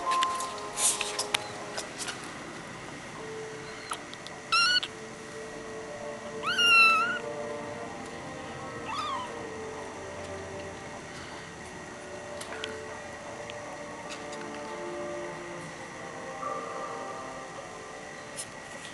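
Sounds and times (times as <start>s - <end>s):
kitten meowing: 4.5s - 4.9s, 6.4s - 7.2s, 8.9s - 9.3s.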